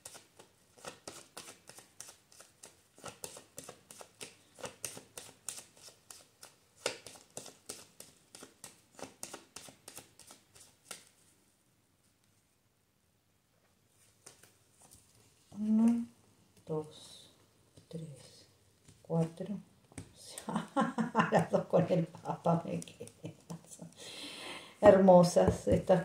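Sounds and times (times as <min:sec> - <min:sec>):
cards being shuffled by hand: 0:00.0 - 0:11.2, 0:14.0 - 0:16.1, 0:21.9 - 0:24.0.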